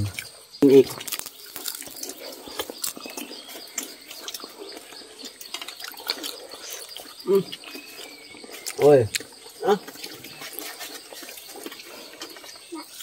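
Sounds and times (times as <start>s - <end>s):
people eating: 0.0s - 13.0s
metal spoons scraping pot: 9.9s - 11.8s.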